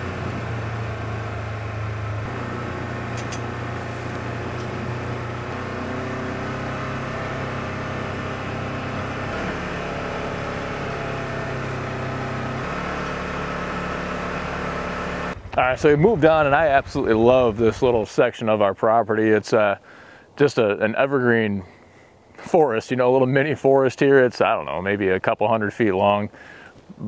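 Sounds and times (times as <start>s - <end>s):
utility vehicle engine running: 0.0s - 18.1s.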